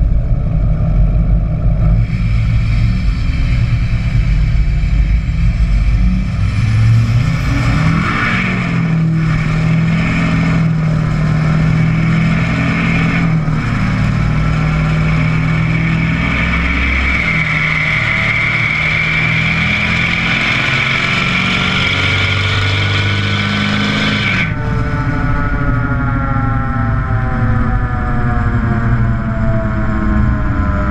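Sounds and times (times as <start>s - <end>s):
diesel truck exhaust while driving: 0.0s - 30.9s
road and wind noise: 0.0s - 30.9s.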